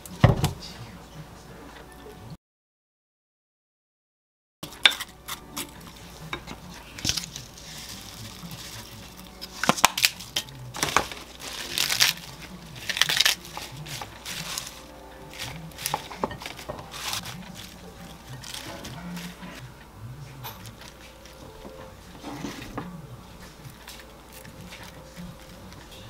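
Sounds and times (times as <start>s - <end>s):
lettuce leaves tearing: 4.8s - 19.6s, 22.4s - 26.0s.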